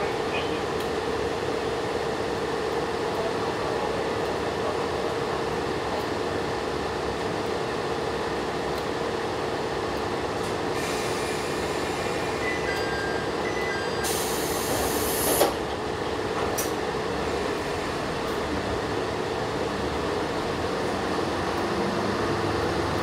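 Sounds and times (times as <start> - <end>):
diesel railcar engine hum: 0.0 - 23.0
loud air hiss: 10.7 - 12.4, 14.0 - 15.6.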